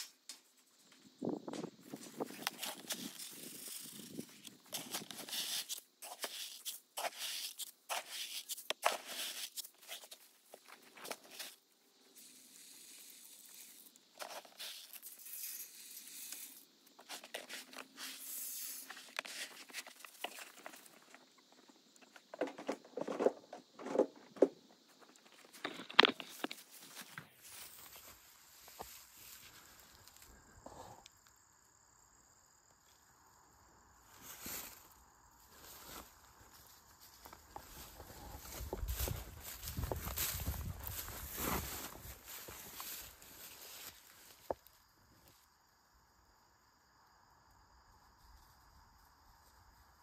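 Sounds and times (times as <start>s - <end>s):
footsteps in dry grass: 25.7s - 30.1s, 35.5s - 44.6s.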